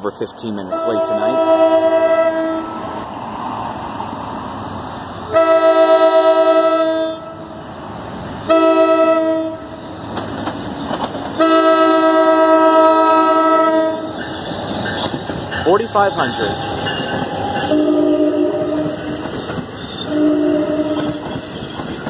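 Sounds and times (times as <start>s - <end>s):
train rumble: 0.1s - 22.0s
train air horn blasts: 0.7s - 2.8s, 5.3s - 7.4s, 8.5s - 9.8s, 11.4s - 14.2s, 17.6s - 21.9s.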